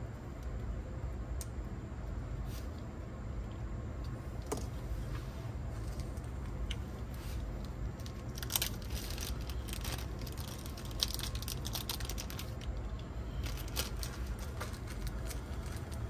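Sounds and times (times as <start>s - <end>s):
steady low hum: 0.0s - 16.0s
handling clicks and rustles: 3.4s - 16.0s.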